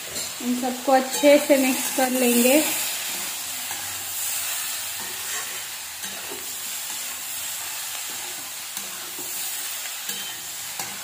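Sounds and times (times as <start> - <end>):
spatula scraping pan: 0.0 - 11.0
vegetables frying hiss: 0.0 - 11.0.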